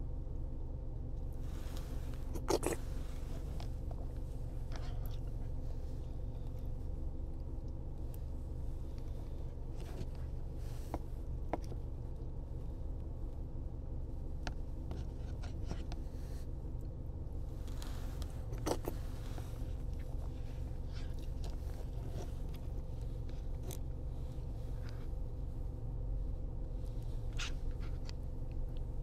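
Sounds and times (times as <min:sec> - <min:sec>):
car cabin hum: 0:00.0 - 0:29.0
plastic spoon scraping paper cup: 0:02.2 - 0:03.5, 0:18.5 - 0:19.4.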